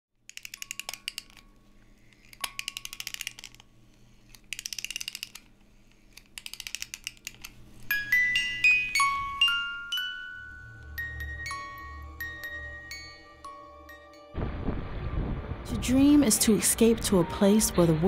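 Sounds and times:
ratchet clicking: 0.3s - 1.4s, 2.1s - 3.6s, 4.3s - 7.6s
bell-like music notes: 7.9s - 14.4s.

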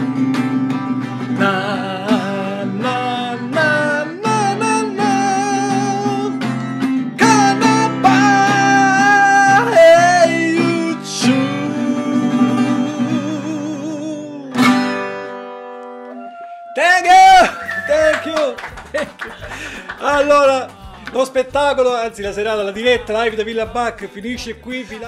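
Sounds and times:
strummed acoustic guitar: 0.0s - 16.1s
man singing with vibrato: 1.2s - 14.8s, 22.7s - 23.8s.

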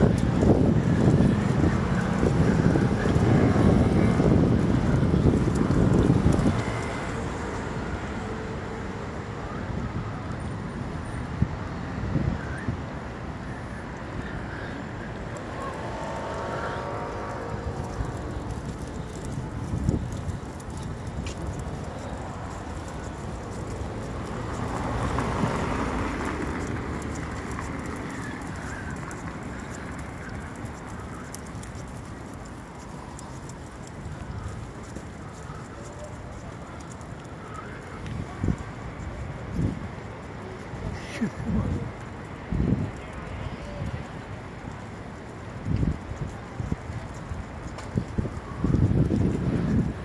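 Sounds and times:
footsteps on pavement: 0.0s - 9.2s, 13.9s - 50.0s
city traffic rumble: 0.0s - 50.0s
wind buffeting microphone: 0.0s - 50.0s.

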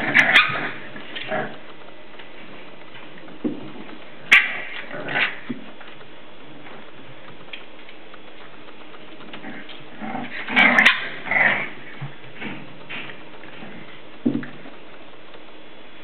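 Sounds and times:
puppies growling and yipping: 0.0s - 1.7s, 3.9s - 5.8s, 9.0s - 14.1s.

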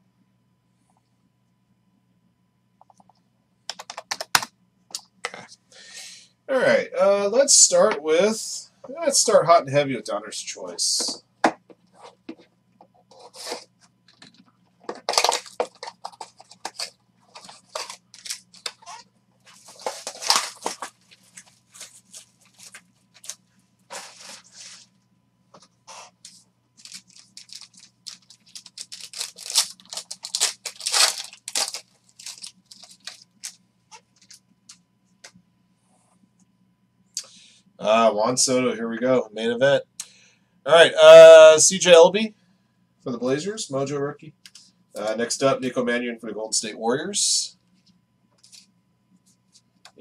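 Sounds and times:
faint steady hum: 0.0s - 50.0s
plastic wrap and foil tearing: 15.0s - 24.8s, 26.8s - 33.6s.

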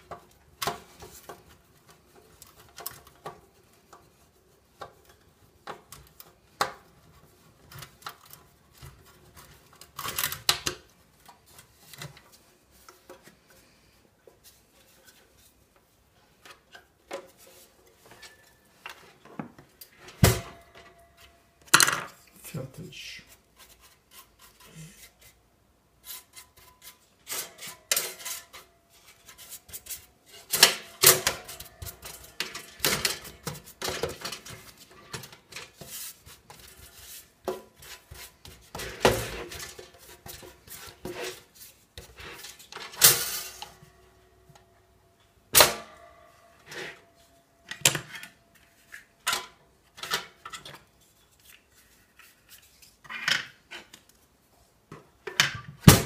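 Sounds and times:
brush scraping metal toaster: 26.0s - 42.8s.

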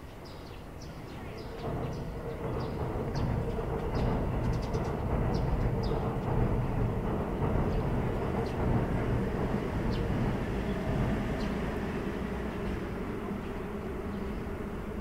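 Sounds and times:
distant traffic rumble: 0.0s - 15.0s.

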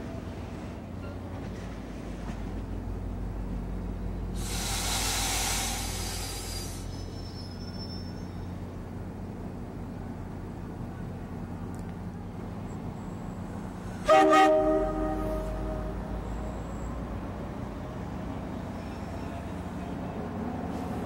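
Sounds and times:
diesel locomotive engine drone: 0.0s - 21.0s
loud hiss: 4.4s - 7.0s.

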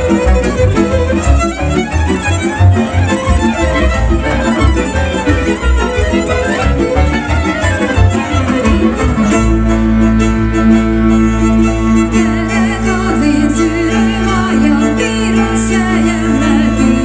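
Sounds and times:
double bass pulse: 0.0s - 17.0s
fiddle playing folk tune: 0.0s - 17.0s.

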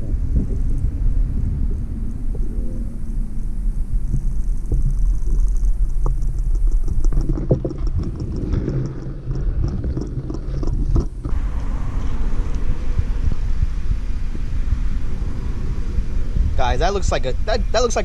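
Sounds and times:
muffled underwater water rumble: 0.0s - 18.0s
fast even ticking: 3.1s - 11.4s.

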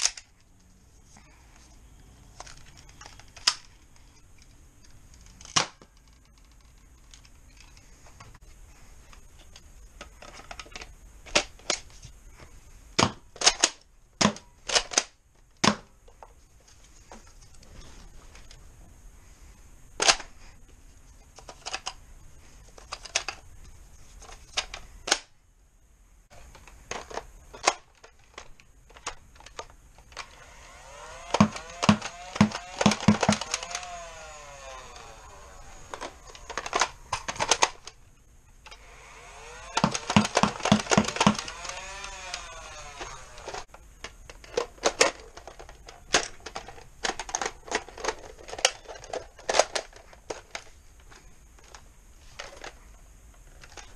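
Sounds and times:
flywheel motor whining: 30.1s - 37.0s, 38.6s - 43.7s
plastic blaster clicks: 30.2s - 38.0s, 38.7s - 43.6s.

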